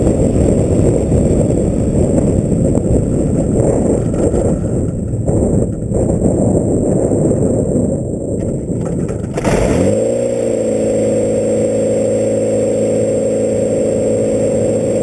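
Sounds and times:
plane engine starting and idling: 0:08.4 - 0:15.0.

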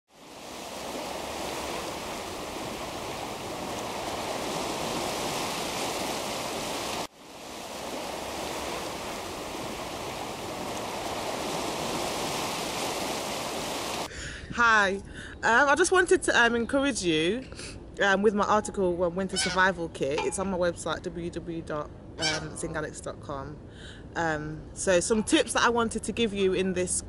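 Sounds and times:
ocean waves rushing on shore: 0:00.1 - 0:14.1.

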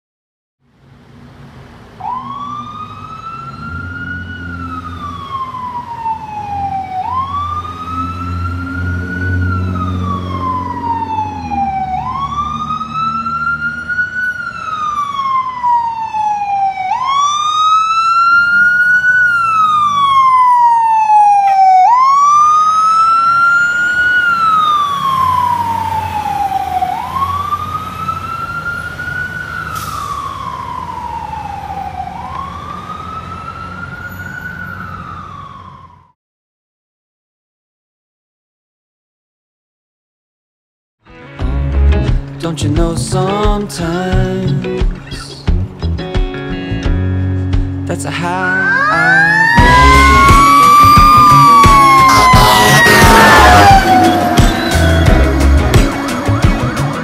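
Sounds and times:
vehicle engines running: 0:00.7 - 0:21.7, 0:22.6 - 0:35.6, 0:41.4 - 0:57.0
fire engine wail siren: 0:01.6 - 0:36.2, 0:47.9 - 0:57.0.

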